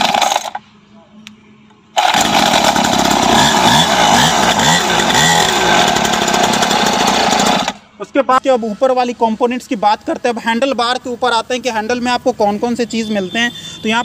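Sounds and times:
small two-stroke engine buzzing: 0:02.0 - 0:07.8.

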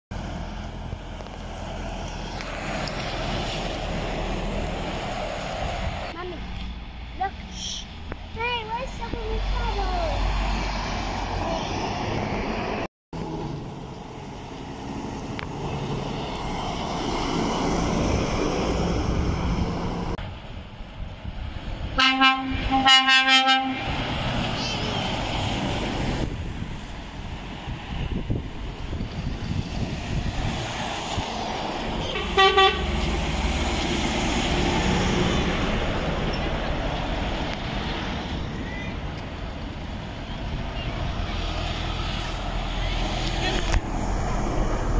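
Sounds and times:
lorry passing by: 0:00.2 - 0:22.9, 0:23.5 - 0:44.9
lorry horn toots: 0:22.0 - 0:23.9, 0:32.0 - 0:33.0.

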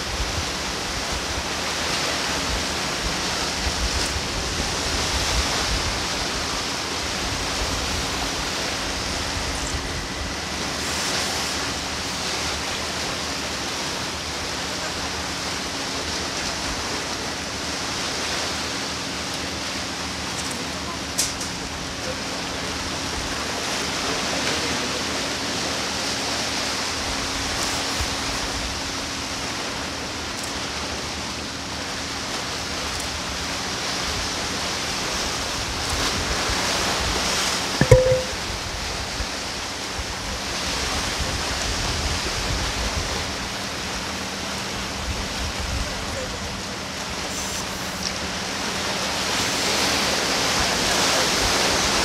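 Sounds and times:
sharp knock: 0:37.8 - 0:38.4.

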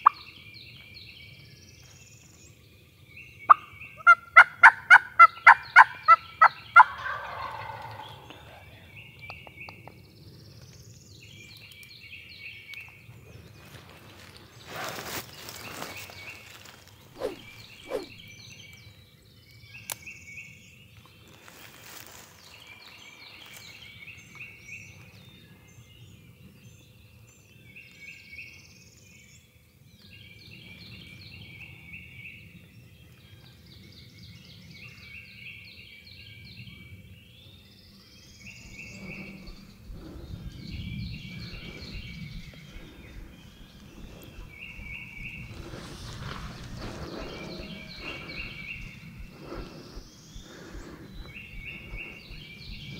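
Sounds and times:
songbirds chirping: 0:00.0 - 0:52.9
clothing and gear rustling: 0:13.6 - 0:18.2.

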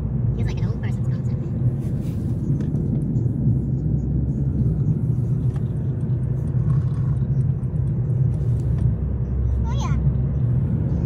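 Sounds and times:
car interior road rumble: 0:00.0 - 0:11.0.

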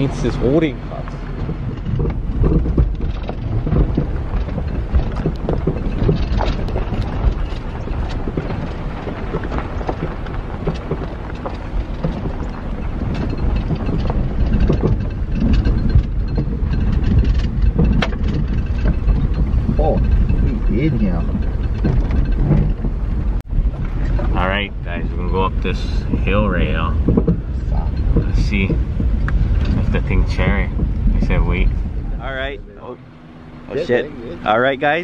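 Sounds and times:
car engine and tyres rumbling: 0:00.0 - 0:35.0
suspension knocks and rattles: 0:00.0 - 0:35.0.

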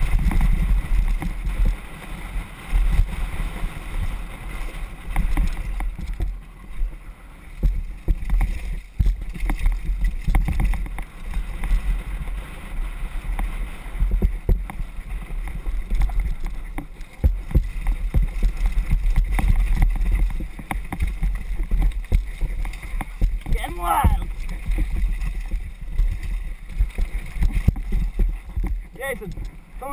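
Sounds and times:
tyres rolling on dirt: 0:00.0 - 0:29.9
wind buffeting microphone: 0:00.0 - 0:29.9
bike knocks and rattles: 0:07.6 - 0:11.8, 0:13.4 - 0:29.5.

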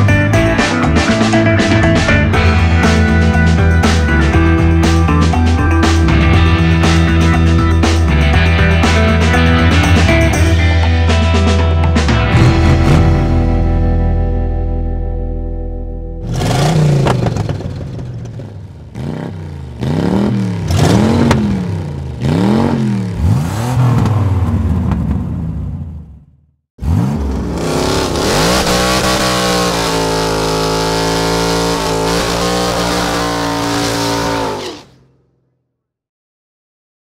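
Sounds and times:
car engine revving: 0:12.2 - 0:13.9, 0:16.2 - 0:25.8, 0:26.8 - 0:35.2.

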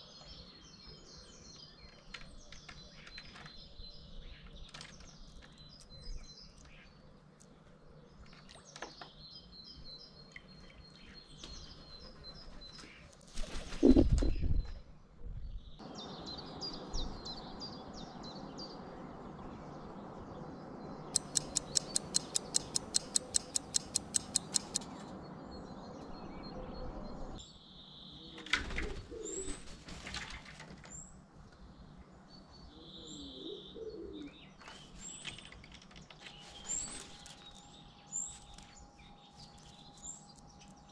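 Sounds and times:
small birds chirping: 0:00.0 - 0:30.1, 0:30.7 - 0:40.9
low wavering calls: 0:21.2 - 0:24.8
quick run of clicks: 0:21.2 - 0:24.9.

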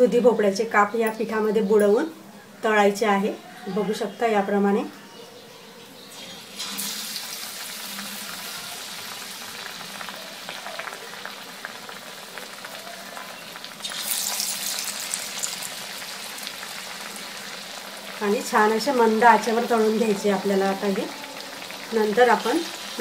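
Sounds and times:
slices deep-frying in oil: 0:06.1 - 0:23.0.

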